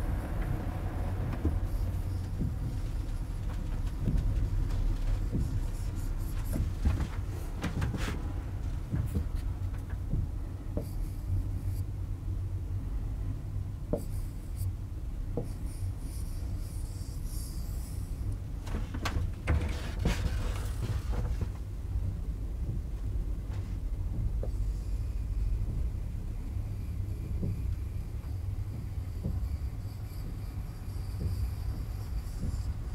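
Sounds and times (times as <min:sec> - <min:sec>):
low room rumble: 0:00.0 - 0:32.9
pen scraping on a board: 0:05.3 - 0:08.2, 0:10.8 - 0:11.8, 0:14.0 - 0:14.7, 0:15.4 - 0:18.2, 0:26.7 - 0:32.9.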